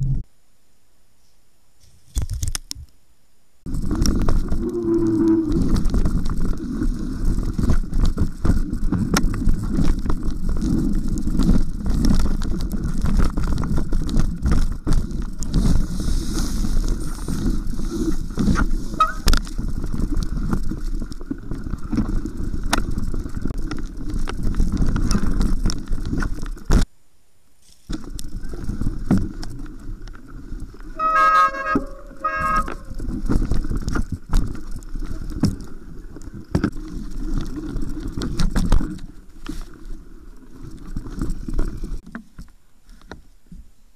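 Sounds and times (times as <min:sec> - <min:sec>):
mountain bike tyres rumbling: 0:03.7 - 0:26.9, 0:27.6 - 0:43.9
bike brakes squealing: 0:19.0 - 0:19.2, 0:31.0 - 0:33.0.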